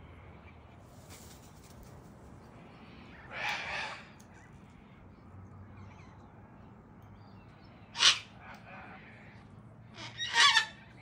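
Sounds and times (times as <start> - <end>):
bird harsh raspy squawk: 3.1 - 4.5, 7.9 - 9.2, 9.8 - 11.0.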